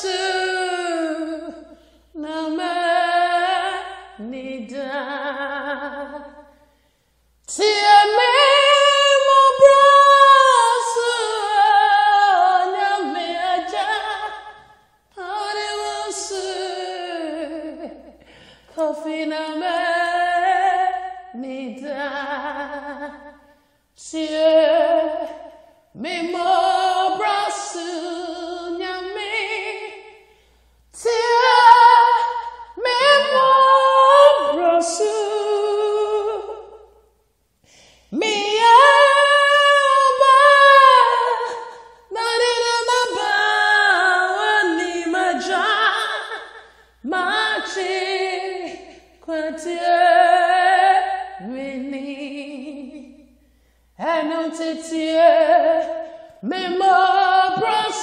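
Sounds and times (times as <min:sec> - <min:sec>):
person singing unaccompanied: 0:00.0 - 0:06.6, 0:07.5 - 0:18.1, 0:24.0 - 0:30.1, 0:31.0 - 0:36.8, 0:38.1 - 0:53.2, 0:54.0 - 0:58.0.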